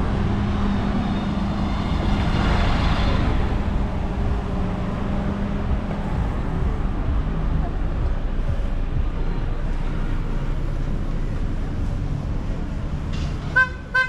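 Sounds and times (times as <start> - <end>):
vehicle passing: 0.0 - 13.6
vehicle engines running: 0.0 - 14.0.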